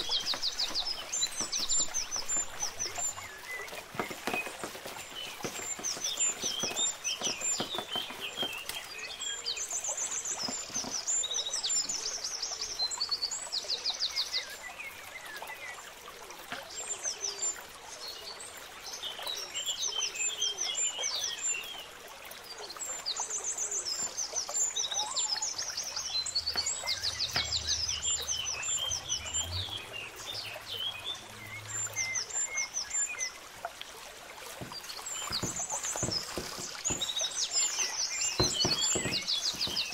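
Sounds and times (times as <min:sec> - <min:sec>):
hand mixing wet batter: 0:00.0 - 0:08.9, 0:34.6 - 0:39.9
small birds chirping: 0:00.0 - 0:33.5, 0:34.3 - 0:39.9.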